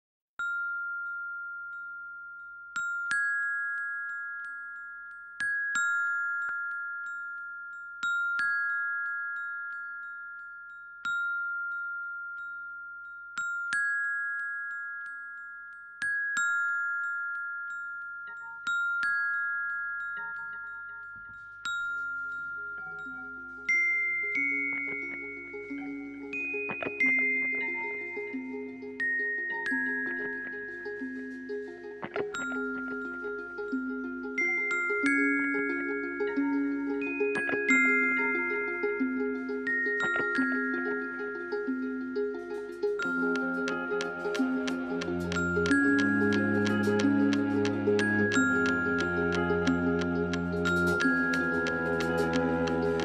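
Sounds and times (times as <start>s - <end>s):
glockenspiel notes: 0.4s - 53.0s
soft low instrument tones: 22.8s - 34.4s, 36.4s - 53.0s.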